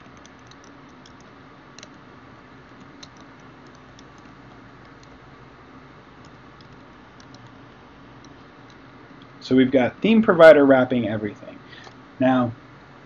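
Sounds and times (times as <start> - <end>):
keyboard keys clicking: 0.0 - 2.0, 2.7 - 5.2, 6.2 - 8.8
low hiss: 0.0 - 13.0.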